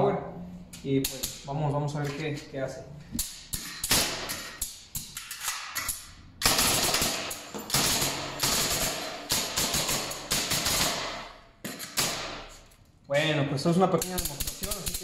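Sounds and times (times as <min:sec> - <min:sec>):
pneumatic nailer firing nails: 0:03.2 - 0:12.6.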